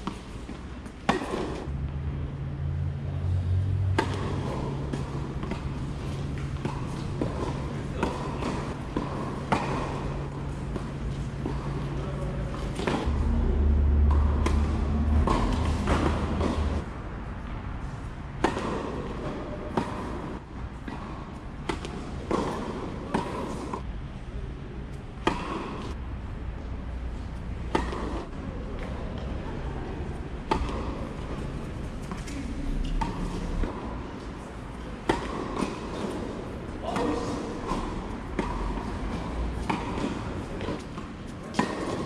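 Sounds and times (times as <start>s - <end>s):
tennis ball struck with rackets: 0.0s - 1.7s, 3.9s - 13.2s, 13.8s - 17.5s, 18.4s - 23.8s, 25.2s - 26.0s, 27.7s - 29.3s, 30.4s - 42.0s
tennis ball bouncing on court: 0.0s - 1.8s, 3.8s - 17.6s, 18.4s - 23.9s, 25.1s - 26.0s, 27.6s - 29.4s, 30.1s - 42.0s
low rumble: 13.1s - 16.8s.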